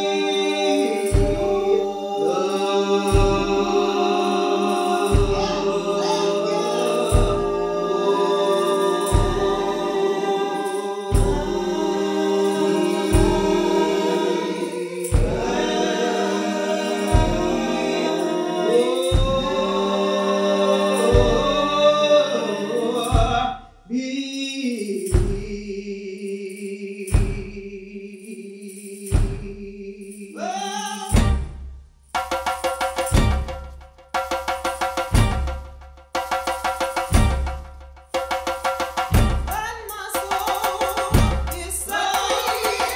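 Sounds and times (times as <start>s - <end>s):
gospel choir singing a hymn: 0.0s - 23.6s, 40.2s - 42.9s
deep thumps: 31.2s - 31.8s, 33.0s - 39.7s, 41.1s - 41.7s.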